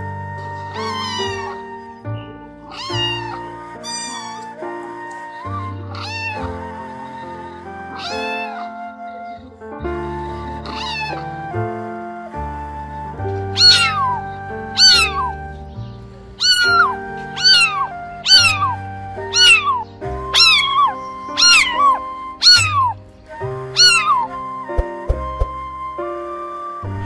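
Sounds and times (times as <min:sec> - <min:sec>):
cat meowing: 0:00.0 - 0:02.0, 0:02.6 - 0:08.8, 0:10.2 - 0:11.5, 0:13.5 - 0:15.4, 0:16.4 - 0:23.0, 0:23.7 - 0:24.6
background music sustained notes: 0:00.0 - 0:27.0.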